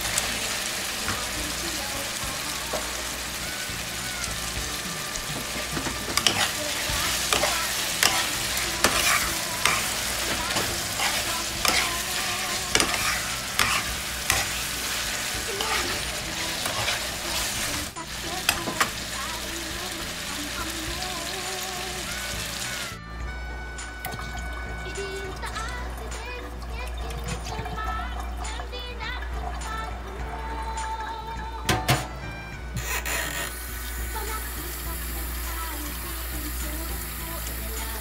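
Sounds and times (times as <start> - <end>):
food sizzling in a frying pan: 0.0 - 23.0, 32.8 - 38.0
metal spoon scraping a pan: 2.7 - 19.4, 32.8 - 33.6.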